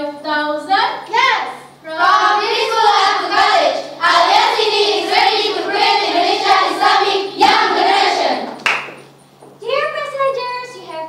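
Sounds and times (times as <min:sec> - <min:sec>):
girls singing in unison: 0:01.9 - 0:08.6.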